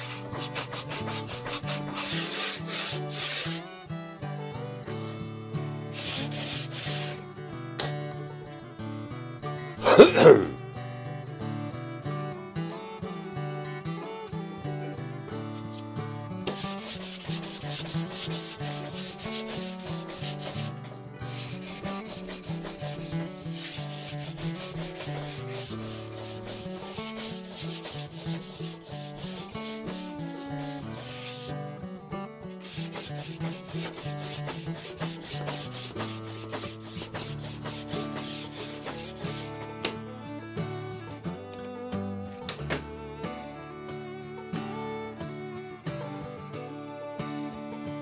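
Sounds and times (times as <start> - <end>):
sandpaper rubbing back and forth: 0.0 - 3.7, 4.9 - 5.2, 5.9 - 7.2, 16.5 - 31.5, 32.6 - 39.6.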